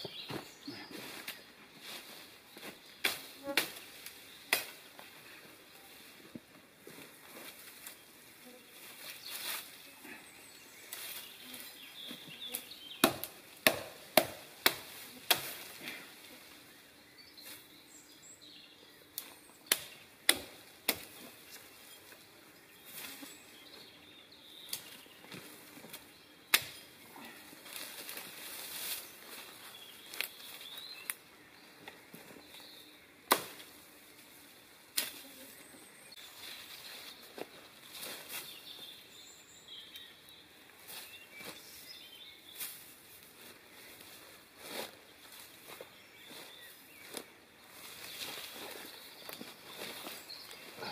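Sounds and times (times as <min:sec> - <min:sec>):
rustle of boughs: 0:00.3 - 0:12.8, 0:22.8 - 0:23.7, 0:27.1 - 0:31.2, 0:32.0 - 0:39.0, 0:40.8 - 0:50.9
chopping into branches: 0:04.5 - 0:04.8, 0:13.0 - 0:15.8, 0:19.2 - 0:21.2, 0:26.5 - 0:26.8, 0:33.3 - 0:33.8.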